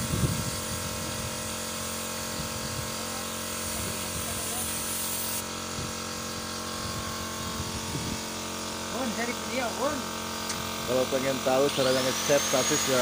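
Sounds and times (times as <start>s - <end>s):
motor hum: 0.0s - 13.0s
spray gun hissing: 0.1s - 8.0s.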